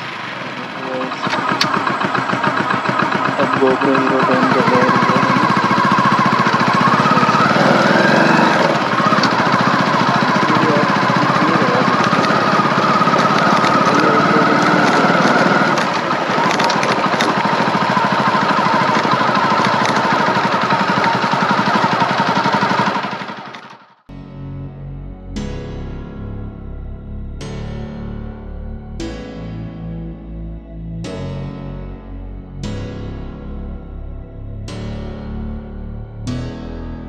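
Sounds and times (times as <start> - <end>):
road and wind noise: 0.0 - 3.4, 4.6 - 23.8
motorcycle engine running: 0.0 - 37.0.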